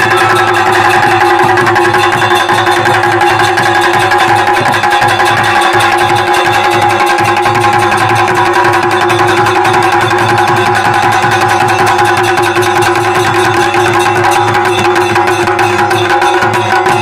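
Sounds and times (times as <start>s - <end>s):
bagpipe over drone: 0.0s - 1.8s
drums beating steady rhythm: 0.0s - 17.0s.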